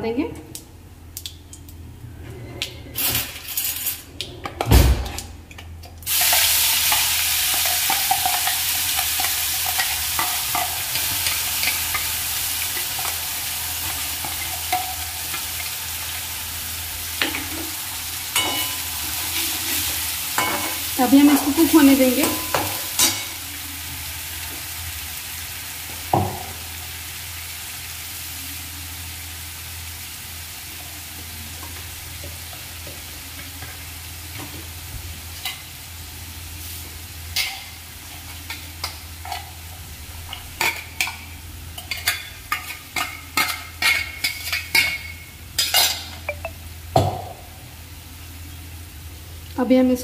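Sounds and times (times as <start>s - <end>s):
paste sizzling in hot oil: 6.1s - 34.2s.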